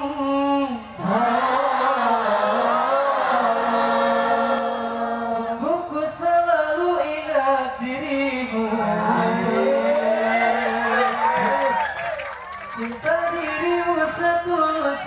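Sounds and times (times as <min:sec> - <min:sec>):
group singing devotional song: 0:00.0 - 0:11.1.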